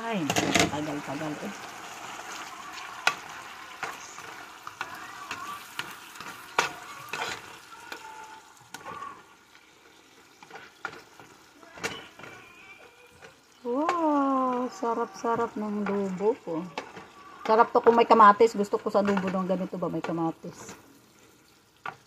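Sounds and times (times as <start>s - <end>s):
food sizzling in a pan: 0.0s - 22.0s
spatula tapping and scraping pan: 2.0s - 8.1s, 10.3s - 20.8s, 21.8s - 22.0s.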